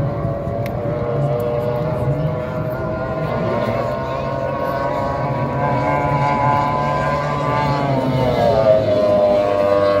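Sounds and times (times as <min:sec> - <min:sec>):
powerboat engine passing by: 0:00.0 - 0:10.0.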